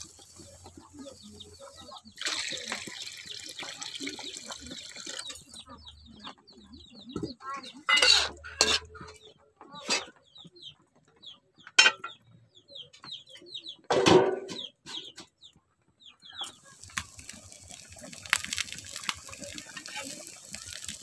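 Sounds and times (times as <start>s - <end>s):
curry sizzling and bubbling: 0.0s - 5.9s, 7.2s - 9.2s, 16.4s - 21.0s
chicks cheeping: 0.0s - 13.9s, 14.5s - 17.9s
chickens clucking: 0.0s - 21.0s.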